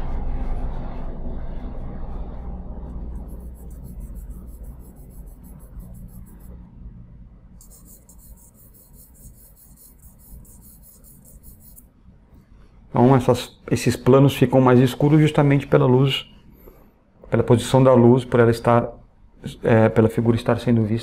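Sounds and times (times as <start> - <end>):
low rumble: 0.0 - 7.6
pencil scratching on paper: 3.1 - 6.6, 7.6 - 11.9.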